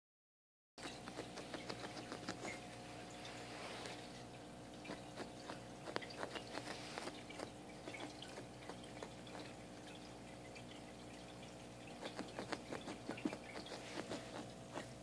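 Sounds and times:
claws scratching carpet: 0:05.0 - 0:07.5, 0:12.0 - 0:14.9.

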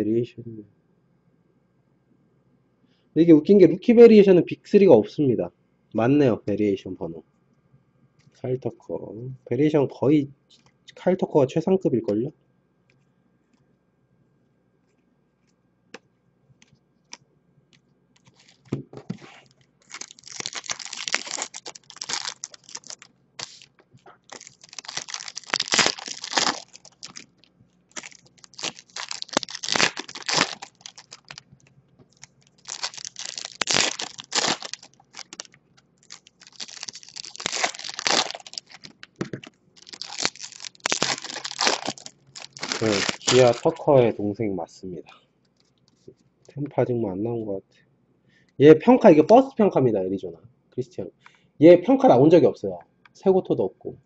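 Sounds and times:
foil wrappers tearing and crinkling: 0:18.2 - 0:31.4, 0:32.1 - 0:43.8.

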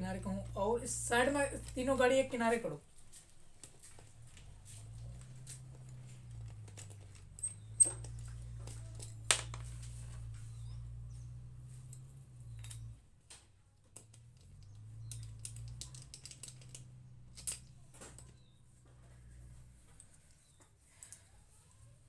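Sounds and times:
low hum: 0:04.0 - 0:13.0.

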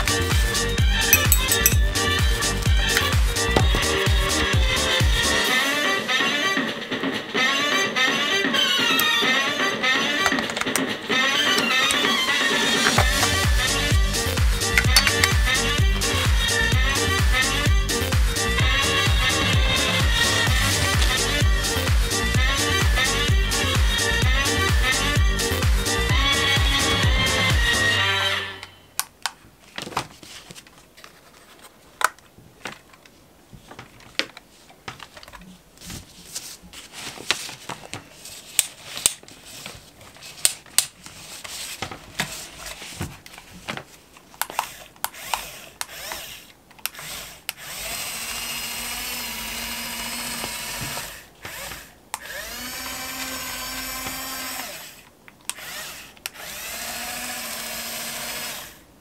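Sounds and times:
small electric motors whining: 0:44.5 - 0:58.8.

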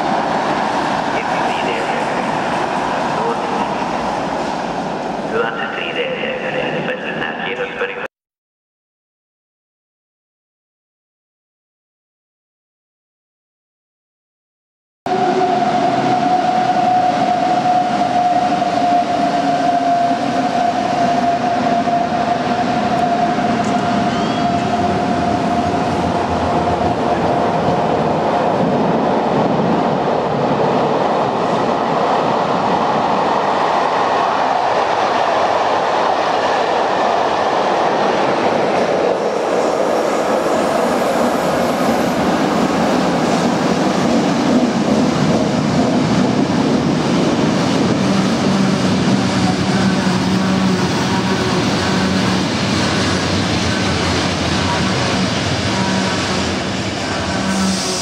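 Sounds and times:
train drive whine: 0:15.1 - 0:58.0
train wheels rumbling on rails: 0:15.1 - 0:58.0.

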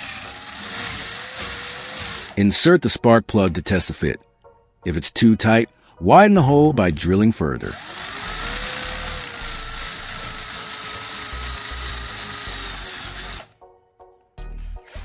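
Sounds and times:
electric drill boring into wood: 0:00.0 - 0:02.4, 0:07.6 - 0:13.6.

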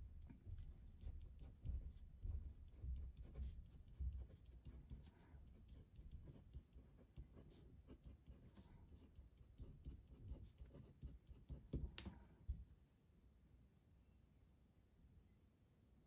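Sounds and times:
pen scratching on paper: 0:00.4 - 0:12.0.

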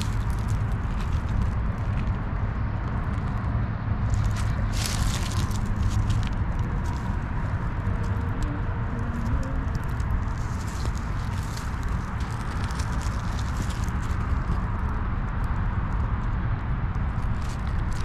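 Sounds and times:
footsteps crunching on gravel: 0:00.0 - 0:02.3, 0:04.1 - 0:08.3, 0:09.2 - 0:14.7
steady low rumble: 0:00.0 - 0:18.0.

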